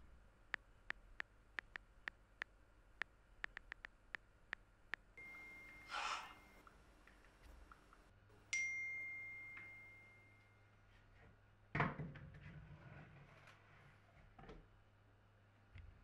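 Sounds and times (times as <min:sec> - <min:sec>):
bell-like notification ding: 0:05.2 - 0:06.6, 0:08.6 - 0:10.6.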